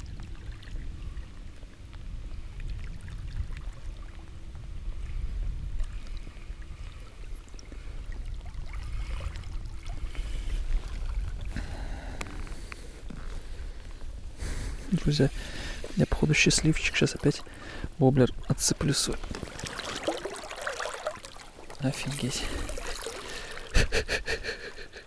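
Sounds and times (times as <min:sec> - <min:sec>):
wind buffeting microphone: 0:00.0 - 0:20.4
river water rumbling: 0:00.0 - 0:25.0
faint ticks: 0:12.1 - 0:14.0.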